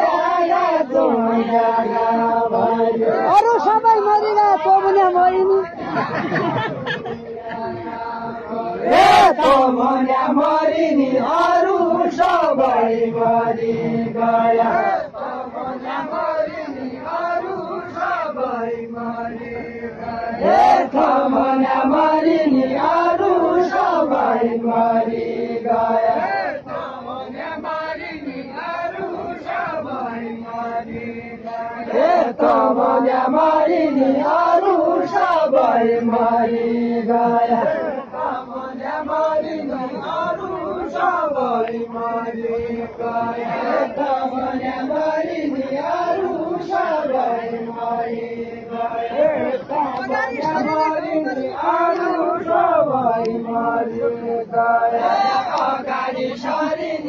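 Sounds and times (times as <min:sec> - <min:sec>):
crowd of men chanting: 0:00.0 - 0:57.0.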